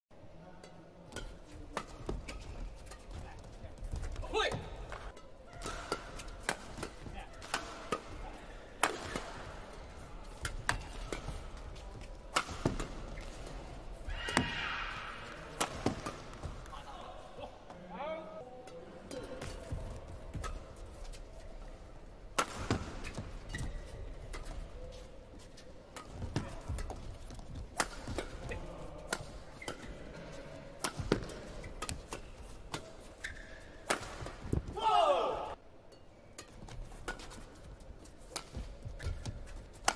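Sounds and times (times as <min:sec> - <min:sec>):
rackets striking shuttlecock: 0:05.0 - 0:09.7, 0:10.3 - 0:13.6, 0:15.4 - 0:16.7, 0:22.3 - 0:24.6, 0:25.9 - 0:30.1, 0:30.7 - 0:34.6, 0:38.3 - 0:39.9.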